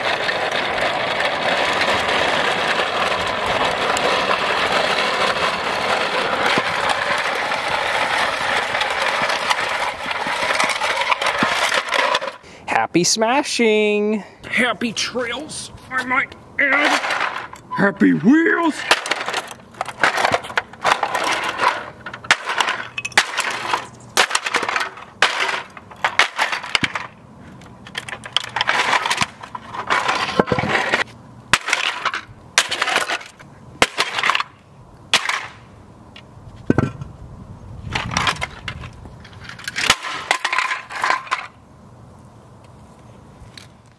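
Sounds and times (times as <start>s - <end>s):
cinder block smashing plastic toy: 18.8s - 27.2s, 28.2s - 35.6s, 39.5s - 41.6s.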